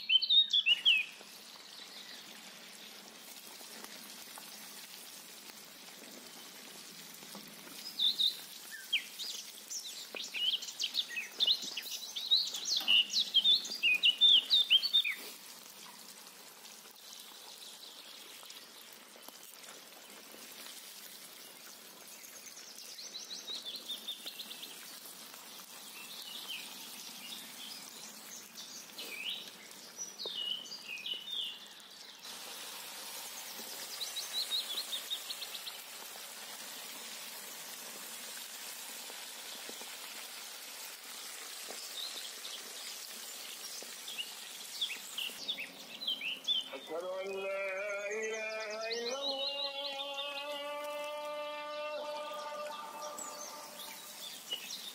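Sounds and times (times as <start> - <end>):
oil sizzling: 0.1 - 46.9, 47.8 - 54.9
small bird chirping: 7.8 - 15.2.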